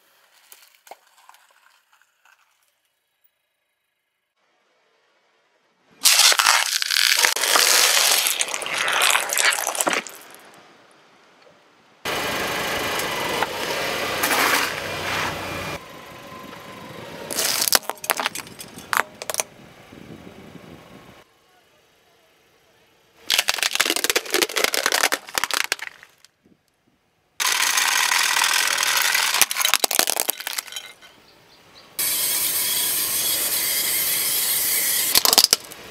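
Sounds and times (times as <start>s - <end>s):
tyre crushing food crunching: 0.1s - 2.7s, 6.0s - 10.4s, 17.3s - 19.4s, 23.3s - 26.2s, 28.9s - 30.9s
sharp cracks: 6.0s - 10.5s, 17.3s - 19.5s, 23.3s - 26.3s, 27.4s - 30.9s, 35.1s - 35.9s.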